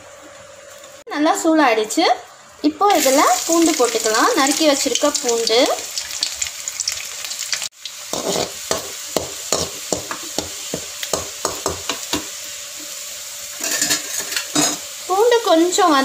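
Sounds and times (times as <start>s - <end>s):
garlic sizzling in oil: 0.0s - 16.0s
metal spatula scraping a pan: 8.1s - 8.9s, 13.6s - 14.8s.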